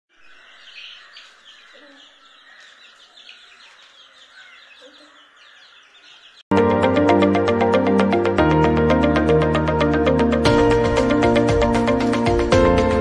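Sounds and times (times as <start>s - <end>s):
chicks peeping: 0.1s - 6.5s.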